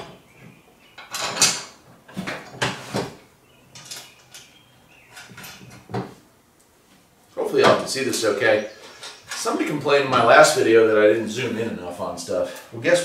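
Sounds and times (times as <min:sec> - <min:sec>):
metal parts clinking and scraping: 0:03.8 - 0:04.6.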